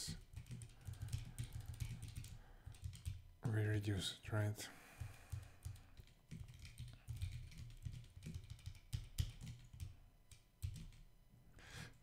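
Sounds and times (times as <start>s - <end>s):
computer keyboard typing: 0.0s - 3.2s, 5.0s - 11.1s.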